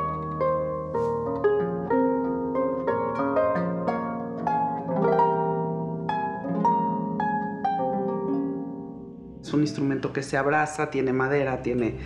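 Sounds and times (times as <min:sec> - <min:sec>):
harp plucked notes: 0:00.0 - 0:10.3.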